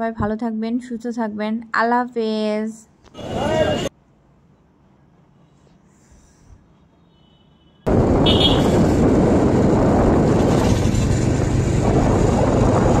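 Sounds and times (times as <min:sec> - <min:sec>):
road noise: 0:03.0 - 0:13.0
wind buffeting microphone: 0:07.9 - 0:13.0.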